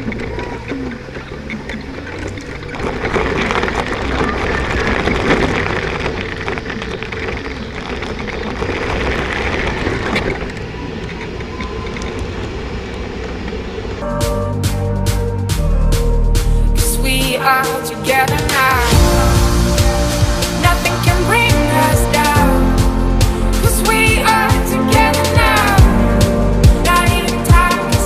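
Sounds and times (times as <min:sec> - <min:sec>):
wheels crunching on gravel: 0:00.0 - 0:13.5
wheels running on asphalt: 0:00.0 - 0:14.0.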